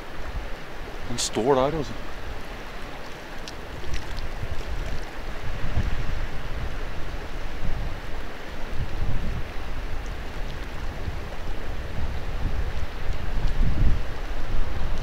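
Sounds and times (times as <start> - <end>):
rushing water: 0.0 - 15.0
wind buffeting microphone: 3.6 - 15.0.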